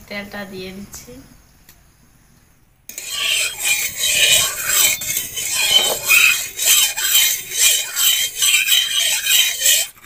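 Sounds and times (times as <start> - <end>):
metal spatula scraping a pan: 2.9 - 10.0.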